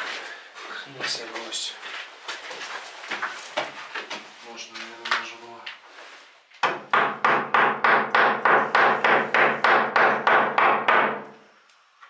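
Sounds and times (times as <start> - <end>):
hammer striking nail: 6.6 - 11.3.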